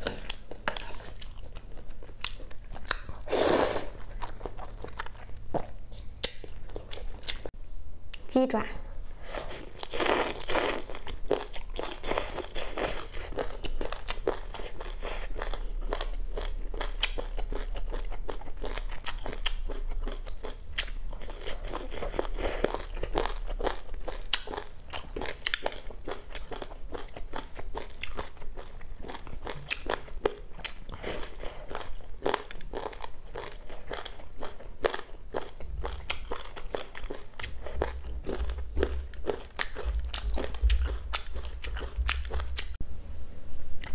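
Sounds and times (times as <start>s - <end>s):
chicken feet being chewed: 9.8s - 42.8s.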